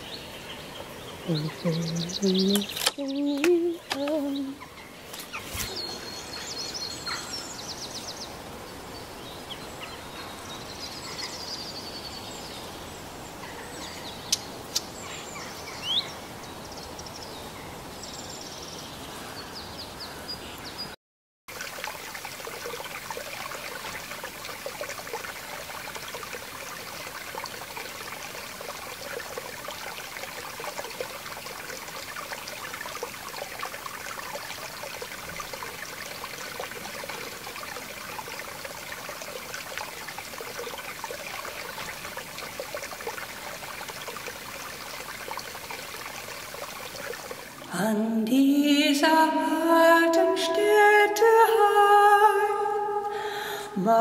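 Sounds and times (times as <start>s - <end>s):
stream babbling: 0.0s - 20.8s, 21.5s - 54.0s
birds chirping: 0.0s - 21.0s.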